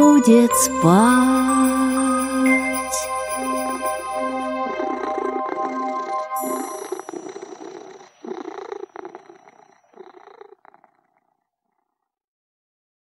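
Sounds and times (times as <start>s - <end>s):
high chime note: 0.0s - 7.6s
cat purring: 0.8s - 12.0s.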